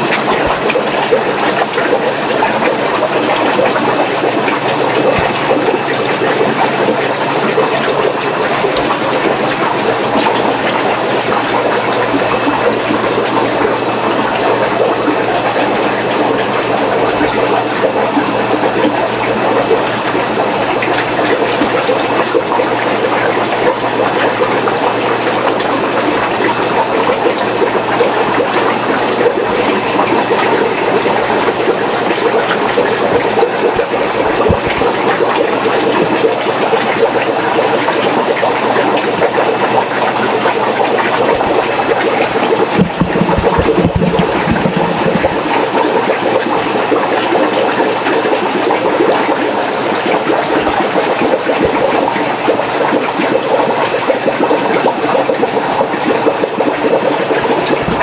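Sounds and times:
steady hum: 0.0s - 53.3s
water bubbling in aquarium: 0.0s - 58.0s
low knocks: 42.8s - 45.5s.

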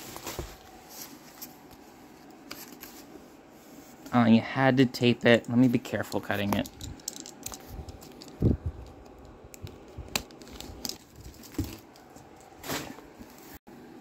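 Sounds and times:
cardboard rustling scrape: 0.0s - 3.8s.

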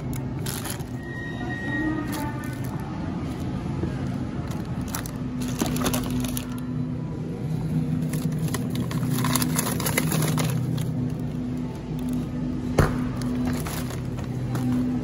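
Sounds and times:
plastic bags crinkling: 0.0s - 1.2s, 4.3s - 6.7s, 7.8s - 12.4s, 13.1s - 15.0s
low steady hum: 0.0s - 15.0s.

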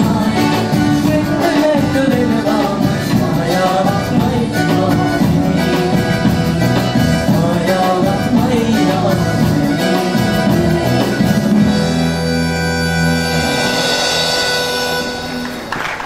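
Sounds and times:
woman singing: 0.0s - 11.9s
live band playing: 0.0s - 16.0s.

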